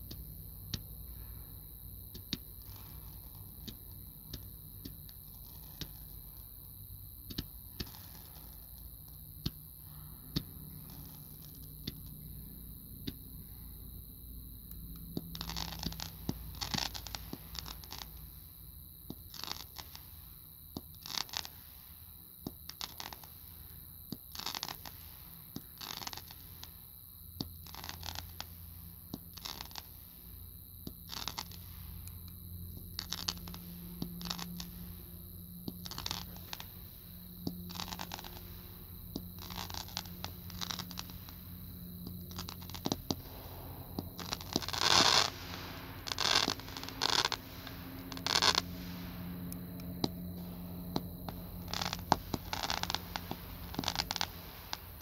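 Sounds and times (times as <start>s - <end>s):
loud firework burst: 0.0s - 6.5s, 15.3s - 18.6s, 31.0s - 55.0s
roman candles popping and whooshing: 0.0s - 13.6s, 14.6s - 26.8s, 27.4s - 55.0s.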